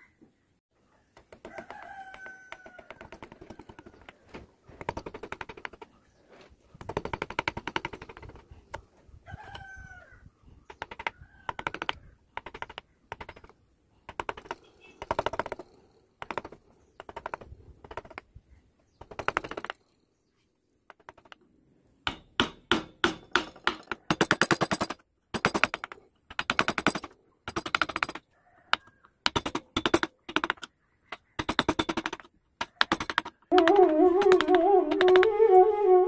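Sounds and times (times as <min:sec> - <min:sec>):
rapid tapping: 0:31.4 - 0:35.5
flute music: 0:33.5 - 0:36.0.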